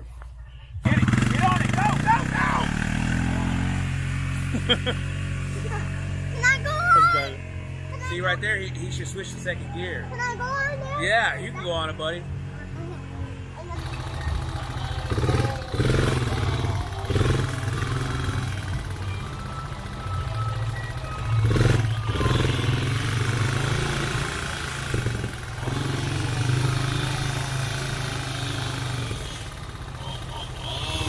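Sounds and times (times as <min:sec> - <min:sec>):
off-road vehicle engines revving: 0:00.8 - 0:31.0.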